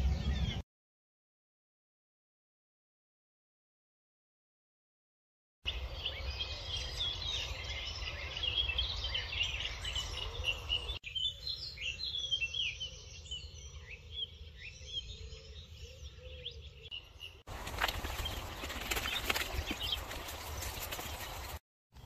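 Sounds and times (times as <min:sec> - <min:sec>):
birds chirping and singing: 0:00.0 - 0:00.6, 0:05.7 - 0:21.6.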